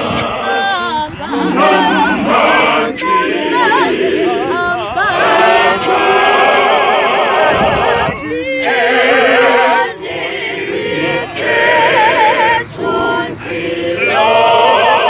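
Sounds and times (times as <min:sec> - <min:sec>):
male choir singing: 0:00.0 - 0:15.0.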